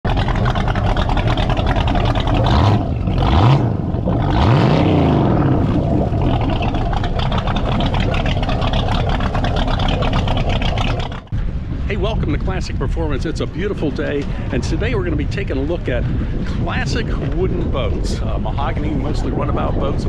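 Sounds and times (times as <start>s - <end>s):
boat engine idling and revving: 0.0s - 19.9s.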